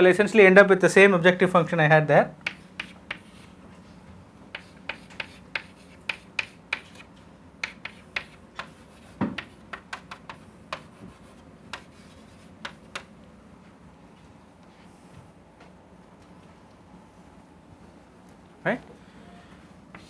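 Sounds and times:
chalk tapping on a chalkboard: 2.4s - 3.5s, 4.5s - 13.1s.

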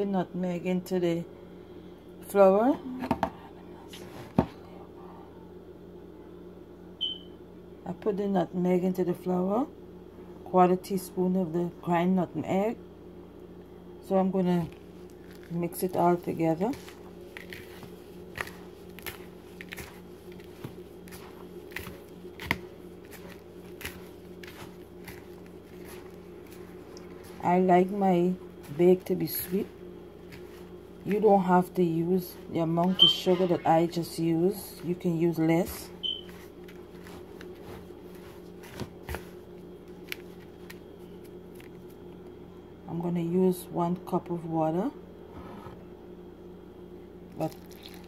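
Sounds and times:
low background hum: 0.0s - 48.0s
hand rubbing flour in plastic bowl: 14.5s - 42.0s.

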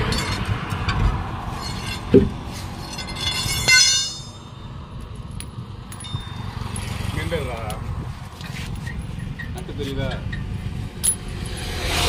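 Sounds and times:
road traffic rumble: 0.0s - 12.0s
metallic clink: 1.6s - 7.0s, 11.0s - 11.7s.

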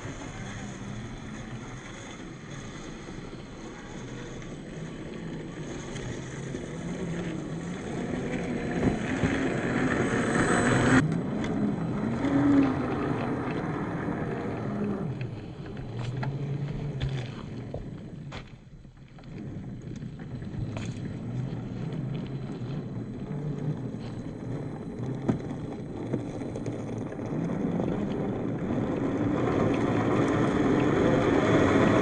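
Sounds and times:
rushing noise: 0.0s - 14.6s
rc car motor and gearbox whine: 0.0s - 32.0s.

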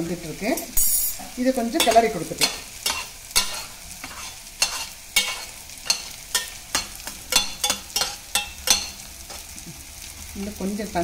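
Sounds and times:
low sizzle of cooking: 0.0s - 11.0s
spatula scraping a metal pot: 1.8s - 8.9s.

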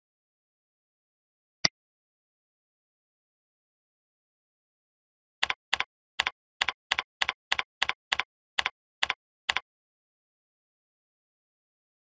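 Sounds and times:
keyboard typing: 5.4s - 9.7s.

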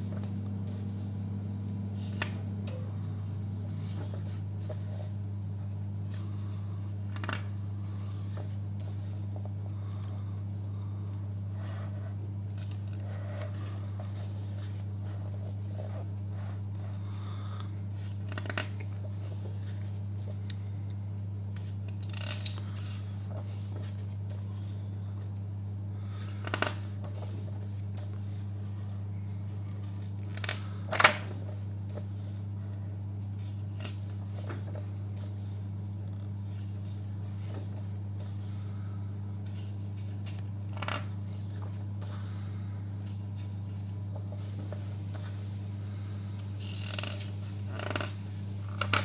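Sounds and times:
low hum: 0.0s - 49.0s
pages turning: 2.0s - 5.2s, 6.0s - 11.0s, 11.6s - 20.8s, 21.5s - 25.2s.

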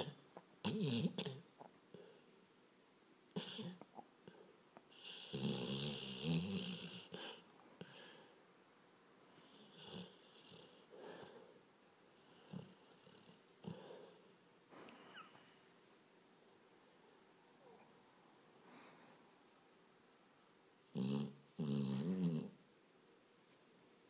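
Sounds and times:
dog snoring: 0.0s - 2.3s, 3.4s - 4.0s, 4.9s - 8.2s, 9.4s - 11.4s, 12.2s - 14.2s, 20.8s - 22.6s.

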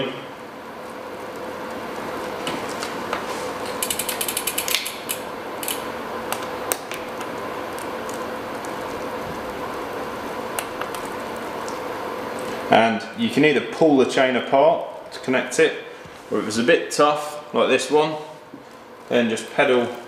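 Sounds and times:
bike chain clicking: 3.7s - 5.8s.

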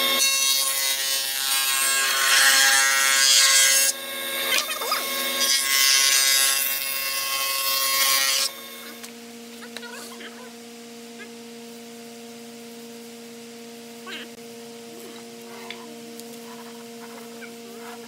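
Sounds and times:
spindle shaper cutting wood: 0.0s - 9.1s
low steady machine hum: 0.0s - 18.0s.

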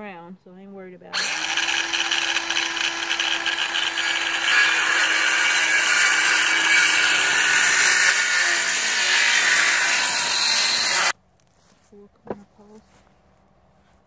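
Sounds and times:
circular saw cutting wood: 1.2s - 11.1s.

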